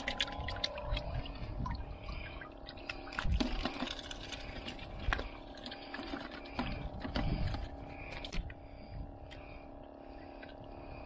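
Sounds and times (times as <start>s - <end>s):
water splashing in a plastic bucket: 0.0s - 8.4s.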